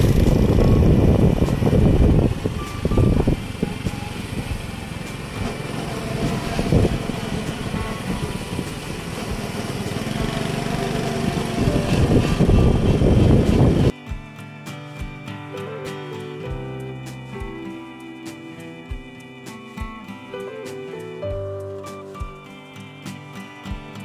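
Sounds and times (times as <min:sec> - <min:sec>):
wind rumbling on microphone: 0:00.0 - 0:13.9
motorcycle engine running: 0:00.0 - 0:14.3.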